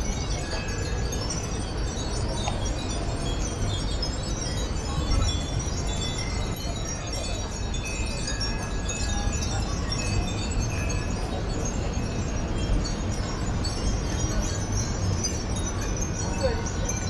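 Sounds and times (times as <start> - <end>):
wind chimes tinkling: 0.0 - 17.0.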